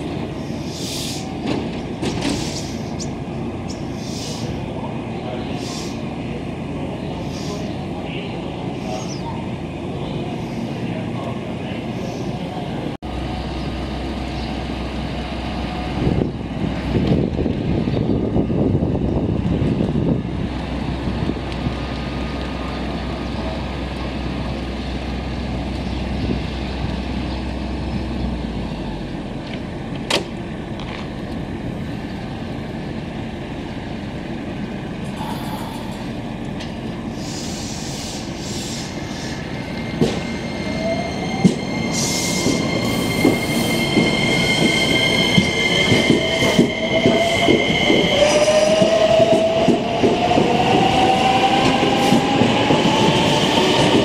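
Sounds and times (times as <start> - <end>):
electric train humming: 22.1 - 54.0.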